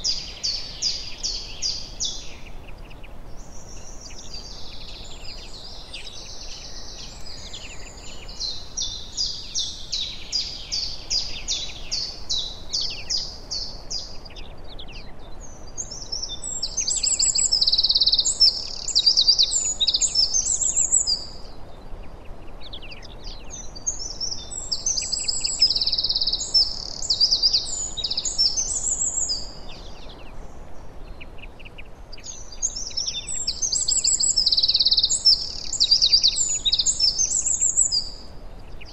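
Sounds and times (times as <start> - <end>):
faint background hiss: 0.0 - 38.9
songbirds singing: 0.0 - 38.9.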